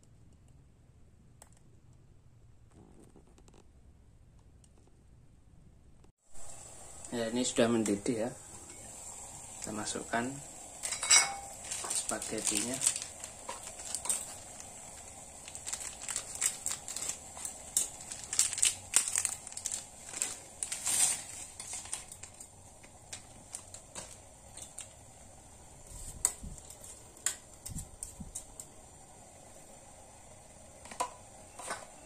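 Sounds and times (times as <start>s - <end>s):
faint hiss: 6.2s - 32.0s
metal spoon stirring in mug: 10.8s - 12.1s
plastic packet crinkling: 10.8s - 25.0s
dry spaghetti clicking: 11.6s - 20.8s.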